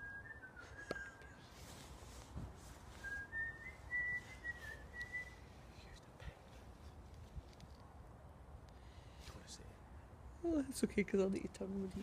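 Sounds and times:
person whistling: 0.0 - 1.4, 2.9 - 5.4.

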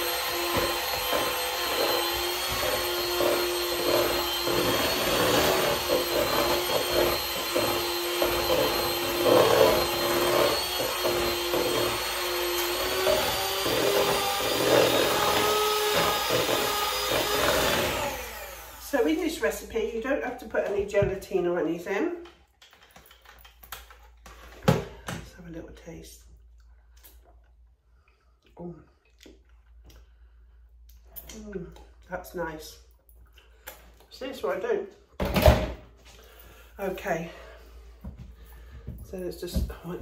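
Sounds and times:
electric hand mixer whisking: 0.0 - 19.3.

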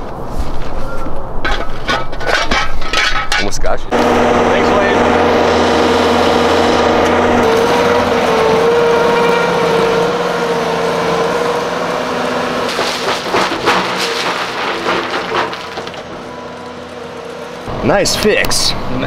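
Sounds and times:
engine running steadily: 3.9 - 19.0.

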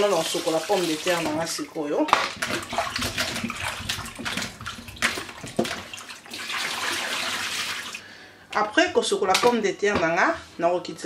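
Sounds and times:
water poured into a sink: 0.0 - 1.6, 2.3 - 8.0
water splashing in a bowl: 0.0 - 8.0.

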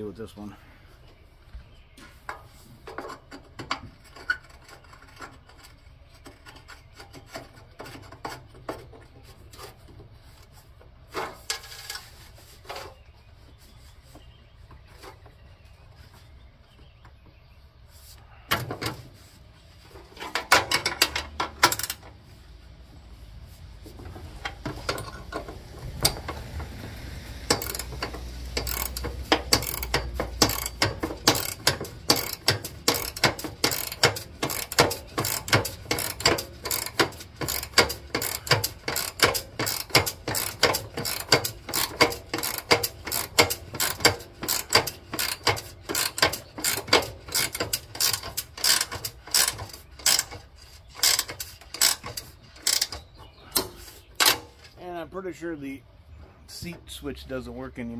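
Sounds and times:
ratchet wrench clicking: 20.7 - 22.0, 27.4 - 53.0.

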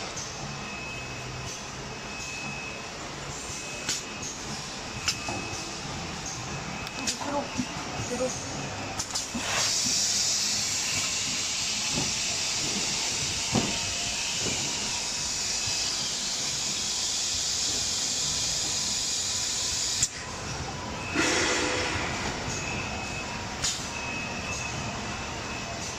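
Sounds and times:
compressed air hissing: 9.2 - 20.1.

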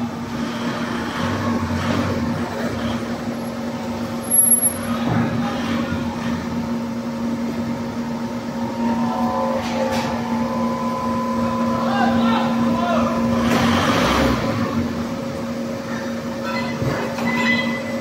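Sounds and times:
machinery humming: 0.0 - 18.0
higher whine: 6.6 - 15.9.

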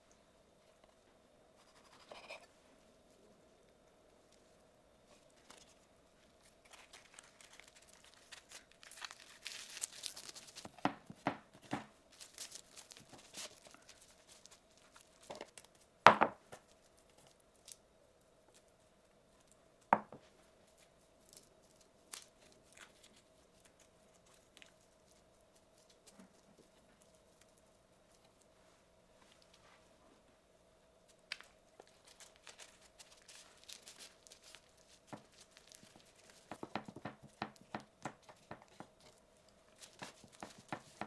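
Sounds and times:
rustling: 0.0 - 15.9, 31.0 - 41.0
faint steady hum: 0.0 - 41.0.

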